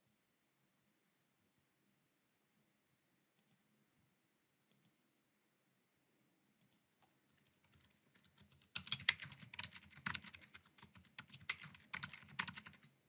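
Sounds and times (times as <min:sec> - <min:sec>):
keyboard typing: 0:06.6 - 0:13.0.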